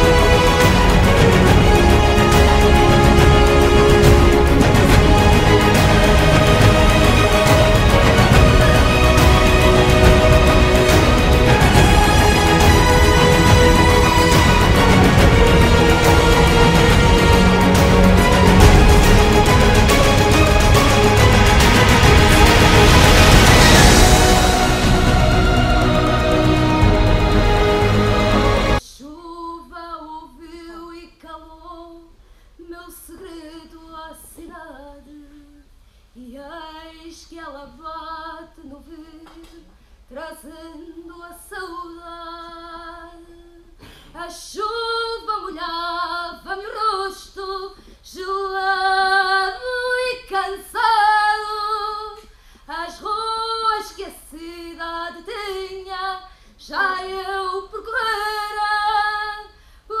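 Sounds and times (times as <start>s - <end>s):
woman singing unaccompanied: 24.0s - 60.0s.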